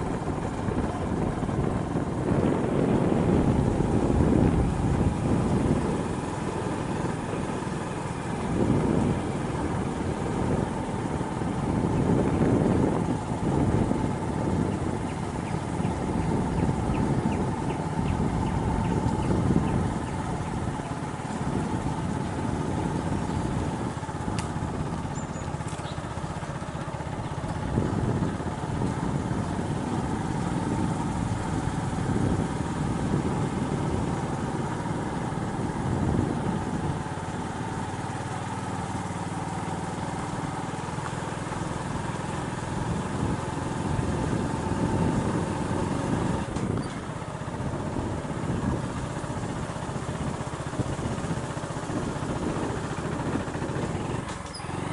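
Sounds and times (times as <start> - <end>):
motorcycle engine running: 0.0 - 54.9.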